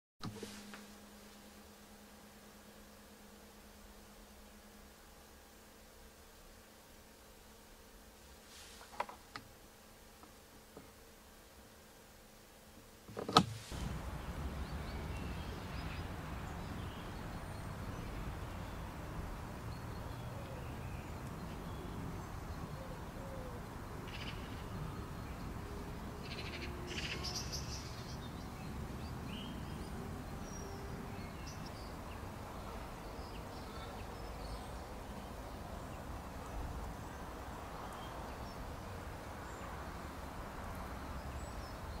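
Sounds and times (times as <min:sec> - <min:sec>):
faint bird chirps: 0:19.7 - 0:38.7.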